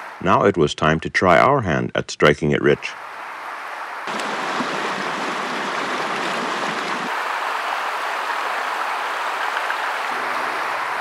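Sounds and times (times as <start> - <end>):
creek rushing over stones: 3.0 - 11.0.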